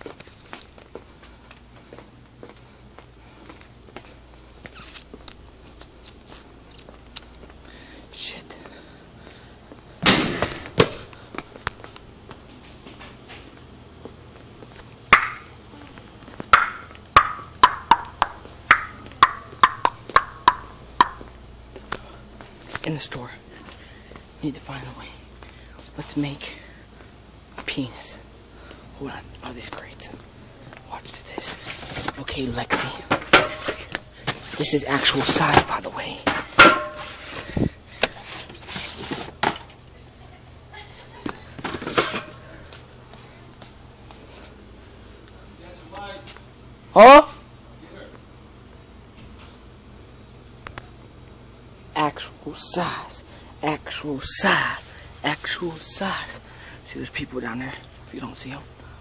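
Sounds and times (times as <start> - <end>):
cardboard cartons thudding down: 10.0 - 11.1.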